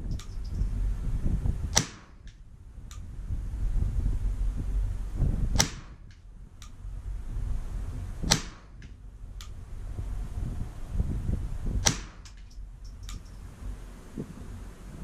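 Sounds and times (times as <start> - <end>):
steady low rumble: 0.0 - 15.0
rifle shots: 1.7 - 2.4, 5.6 - 6.1, 8.3 - 9.0, 11.8 - 12.6.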